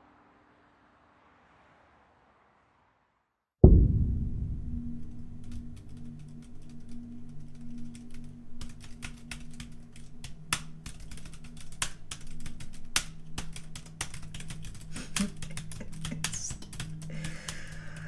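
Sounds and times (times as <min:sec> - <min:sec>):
low steady hum: 0:03.6 - 0:13.2
laptop keyboard typing: 0:05.4 - 0:18.0.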